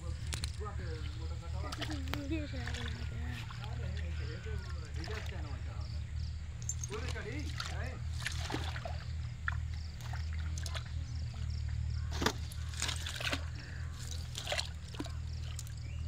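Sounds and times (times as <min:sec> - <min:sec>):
low hum: 0:00.0 - 0:16.0
fish slapping in wet net: 0:01.7 - 0:03.8, 0:07.5 - 0:11.4, 0:12.1 - 0:15.8.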